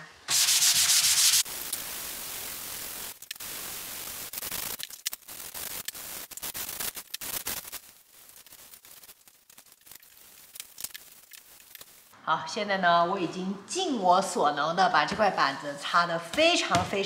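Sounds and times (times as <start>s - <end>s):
sandpaper rubbing on wood: 0.3s - 1.5s.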